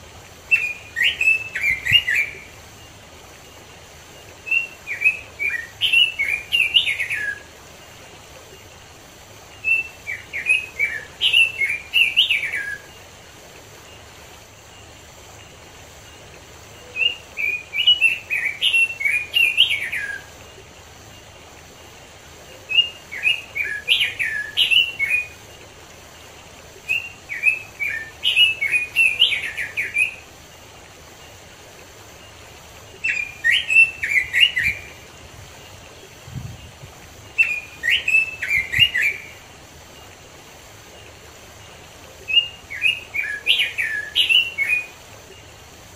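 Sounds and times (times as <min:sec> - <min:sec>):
bird singing warbled phrases: 0:00.4 - 0:02.6, 0:04.4 - 0:07.6, 0:09.5 - 0:13.1, 0:16.7 - 0:20.6, 0:22.5 - 0:25.5, 0:26.7 - 0:30.3, 0:32.3 - 0:39.4, 0:41.0 - 0:45.4.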